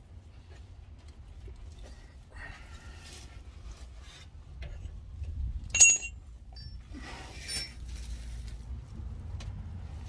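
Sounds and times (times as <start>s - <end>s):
sharp metallic clink: 5.7s - 6.8s.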